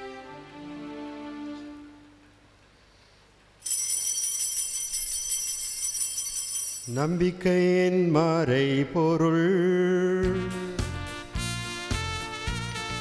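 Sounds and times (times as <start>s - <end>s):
background music: 0.0s - 2.3s, 10.1s - 13.0s
altar bells ringing: 3.6s - 7.3s
man singing: 6.9s - 11.2s.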